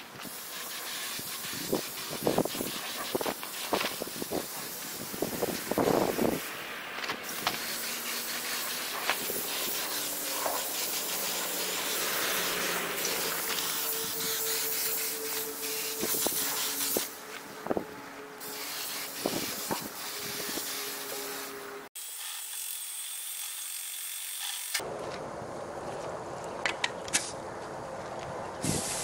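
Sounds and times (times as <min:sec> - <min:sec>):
paint spray gun hissing: 0:00.0 - 0:06.6, 0:07.2 - 0:17.4, 0:18.4 - 0:22.7, 0:28.6 - 0:29.0.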